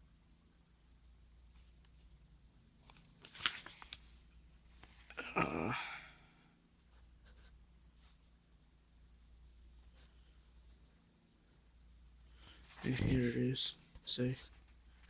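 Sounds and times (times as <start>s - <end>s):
paper rustling: 2.8s - 4.1s, 12.4s - 15.0s.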